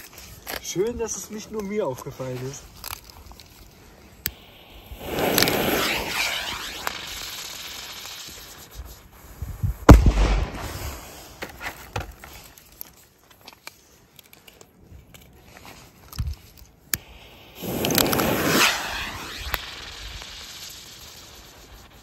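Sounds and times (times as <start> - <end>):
firework cracks: 2.7 - 9.2, 9.8 - 11.9, 16.9 - 22.0
firework spark fountain hissing: 4.2 - 11.5, 17.0 - 22.0
firework bang: 4.4 - 8.5, 9.9 - 11.6, 17.2 - 21.5.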